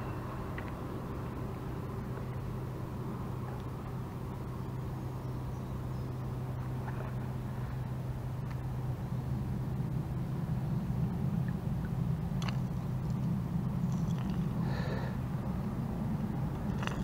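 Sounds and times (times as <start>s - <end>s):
low motor hum: 0.0s - 17.0s.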